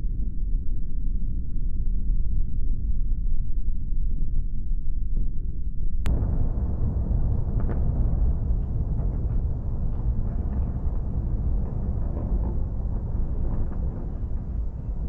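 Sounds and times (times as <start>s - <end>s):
deep rumble of buildings collapsing: 6.1s - 15.0s
faint crackles: 6.1s - 15.0s.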